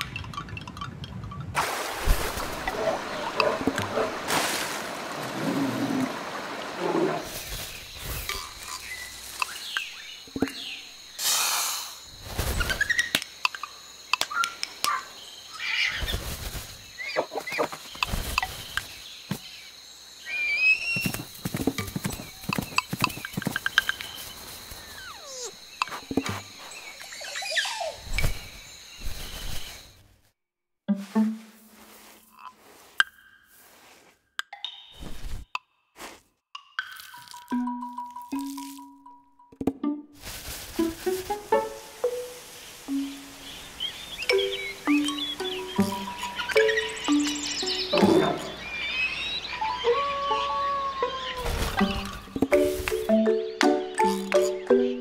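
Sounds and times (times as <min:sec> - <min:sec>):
chirping animal calls: 0:24.7 - 0:28.2, 0:43.1 - 0:54.8
tissue paper rustling: 0:40.2 - 0:41.5.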